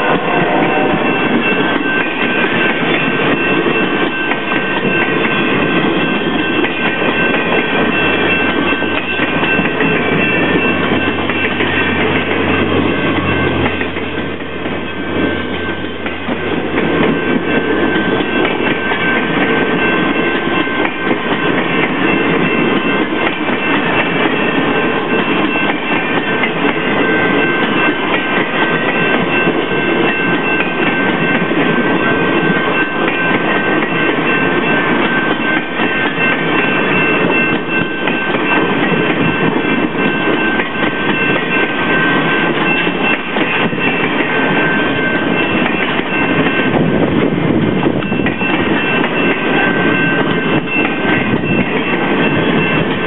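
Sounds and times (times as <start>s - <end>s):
thin high tone: 0.0s - 3.6s
train wheels rumbling on rail: 0.0s - 53.0s.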